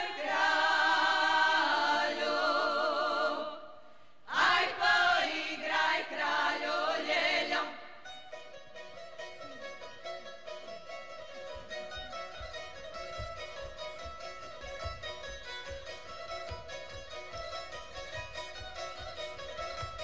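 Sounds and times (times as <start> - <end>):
women's choir singing unaccompanied: 0.0 - 8.0
plucked string instruments: 5.9 - 20.0.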